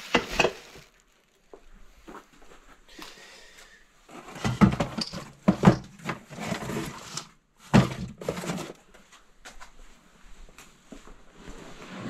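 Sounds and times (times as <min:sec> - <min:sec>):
cardboard box scraping and rustling: 0:04.1 - 0:08.8.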